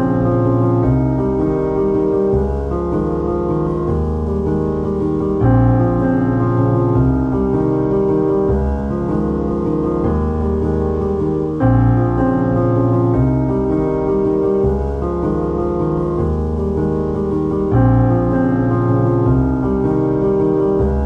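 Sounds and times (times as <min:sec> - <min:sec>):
piano chords: 0:00.0 - 0:21.0.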